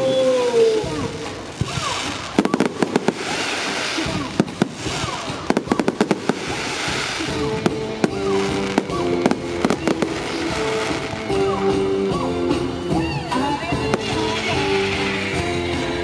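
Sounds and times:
fireworks bangs and crackles: 0:00.0 - 0:16.0
music with sustained notes: 0:05.5 - 0:16.0.

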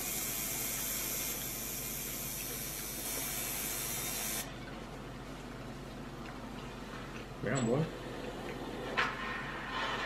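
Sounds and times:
steady hiss: 0:00.0 - 0:04.5.

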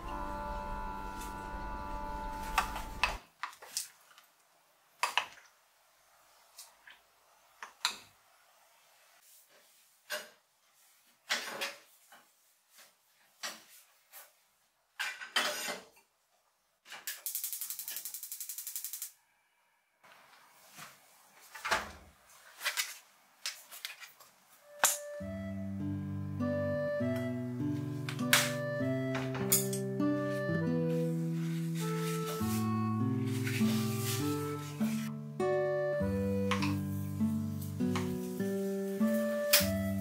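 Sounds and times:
dishes and cutlery clinking: 0:29.4 - 0:29.9.

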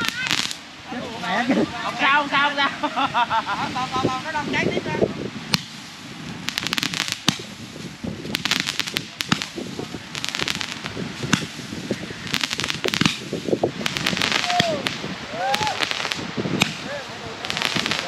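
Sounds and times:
fireworks crackling: 0:00.0 - 0:18.0
loud firework pops: 0:05.5 - 0:18.0.

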